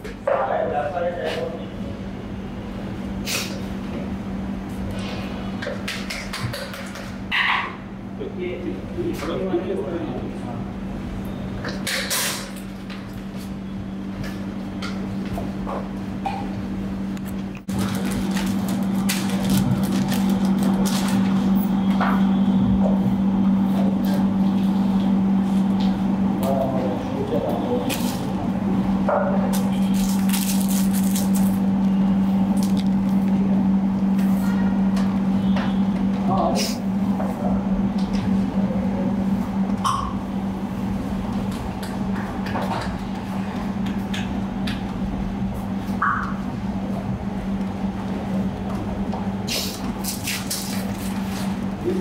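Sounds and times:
low machine hum: 0.0s - 52.0s
paper rustling and clicking: 17.7s - 21.4s, 29.6s - 31.6s, 49.6s - 51.6s.

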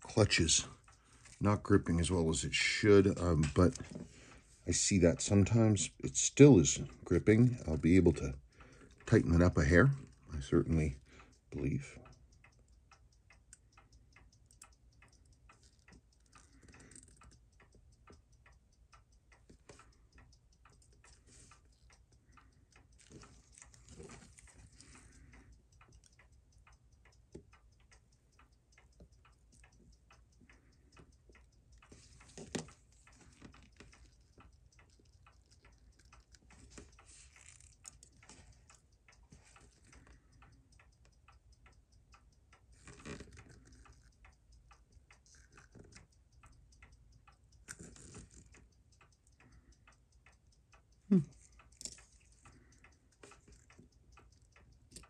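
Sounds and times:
watch movement ticking: 0.0s - 55.0s
tweezers clicking on metal parts: 9.0s - 55.0s.

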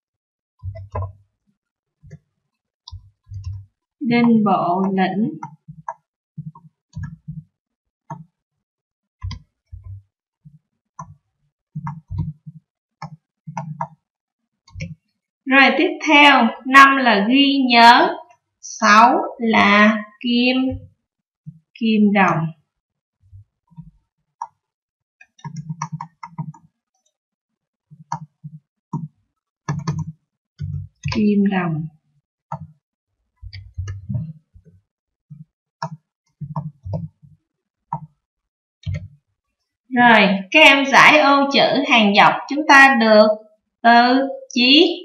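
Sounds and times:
keyboard and mouse clicks: 0.6s - 1.2s, 2.9s - 7.4s, 8.1s - 8.4s, 9.2s - 11.2s, 11.8s - 14.1s, 14.7s - 15.0s, 23.7s - 27.2s, 27.9s - 31.3s, 32.5s - 32.8s, 33.4s - 38.2s, 38.8s - 39.2s.

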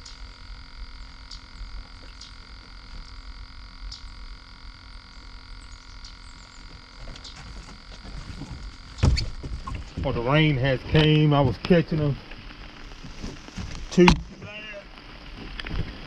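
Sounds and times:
low steady rumble: 0.0s - 16.0s
frogs calling in chorus: 1.1s - 4.4s, 5.0s - 7.9s.

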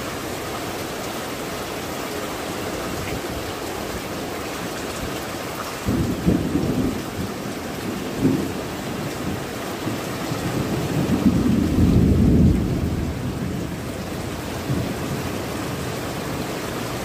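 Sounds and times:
rain on tile roofs: 0.0s - 17.0s
low rumble of thunder: 5.8s - 16.5s.

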